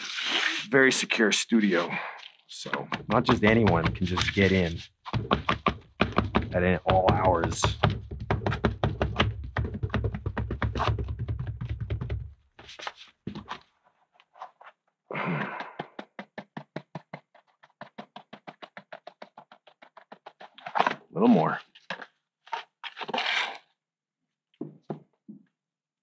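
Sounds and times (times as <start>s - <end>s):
rapid tapping on concrete mold: 2.7s - 12.4s, 15.2s - 20.4s.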